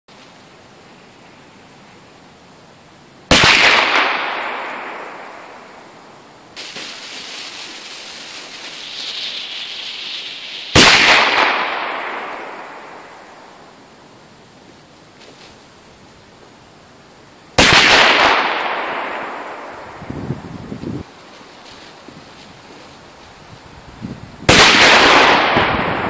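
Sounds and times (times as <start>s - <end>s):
firecracker bangs: 3.3s - 5.6s, 6.6s - 13.2s, 17.6s - 20.0s, 24.4s - 26.0s.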